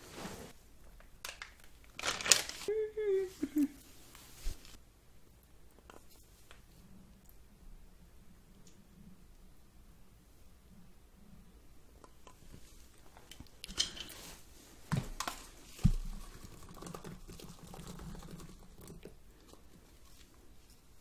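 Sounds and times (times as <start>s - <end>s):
rustling and light patter: 3.4s - 4.8s.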